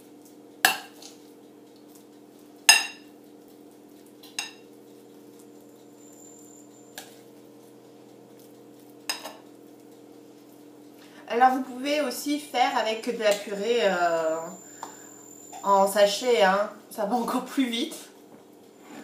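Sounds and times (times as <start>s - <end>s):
steady low hum: 0.0s - 19.0s
metal spoon clinking on dishes: 9.1s - 9.4s.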